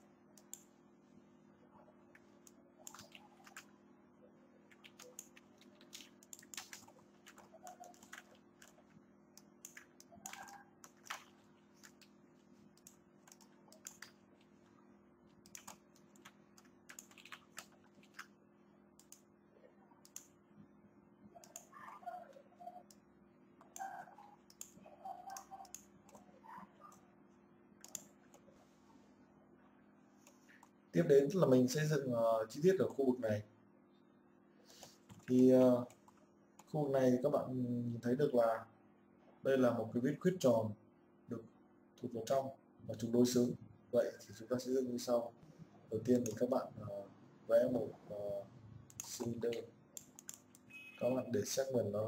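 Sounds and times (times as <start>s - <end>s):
keyboard and mouse clicking: 2.4s - 3.7s, 4.7s - 12.1s, 12.8s - 14.2s, 15.4s - 18.3s, 20.0s - 20.3s, 21.4s - 22.2s, 23.6s - 26.3s, 27.8s - 28.4s, 48.9s - 49.4s, 50.0s - 50.7s.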